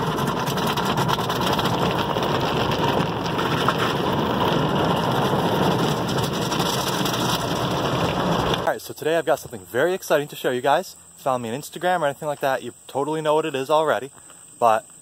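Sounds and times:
brush strips sweeping over car: 0.0s - 8.7s
water spray on car: 0.0s - 8.7s.

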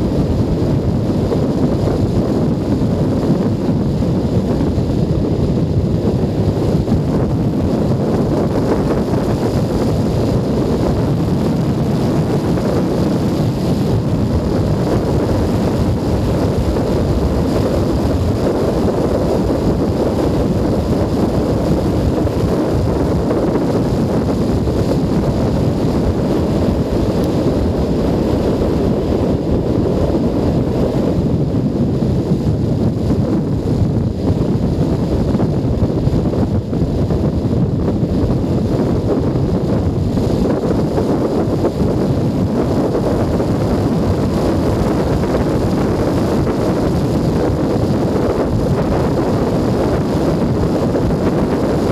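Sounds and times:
wind rush on microphone: 0.0s - 51.9s.

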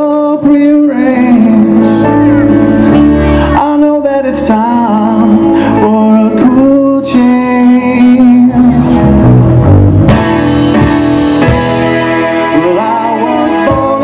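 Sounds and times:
soft rock band playing: 0.0s - 14.0s
voices singing: 12.3s - 14.0s.

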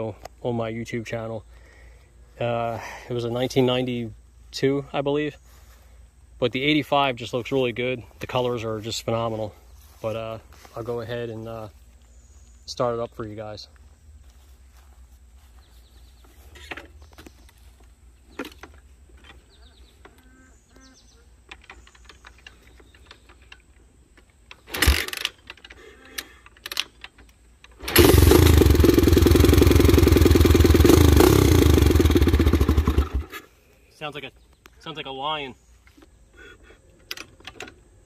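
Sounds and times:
motorcycle engine kick-started: 24.7s - 25.4s, 27.7s - 33.4s
engine short burst: 27.8s - 33.4s
motorcycle engine running loud: 27.9s - 33.3s.

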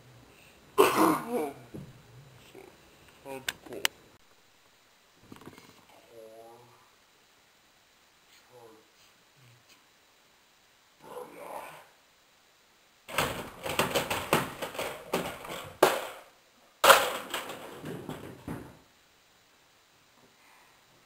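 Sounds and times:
scraping and rustling on plastic: 13.1s - 18.7s.

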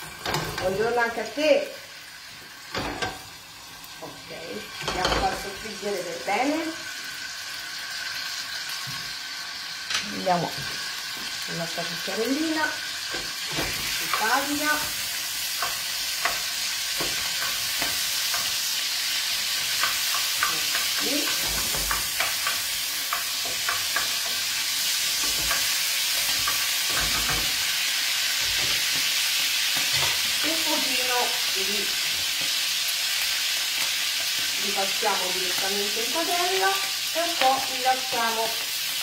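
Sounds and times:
food sizzling in oil: 0.0s - 39.0s
wooden spoon stirring in pan: 12.0s - 39.0s.

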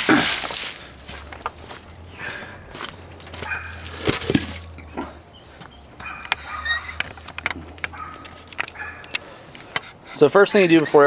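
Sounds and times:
rustling of dry leaves on concrete: 0.0s - 5.1s.

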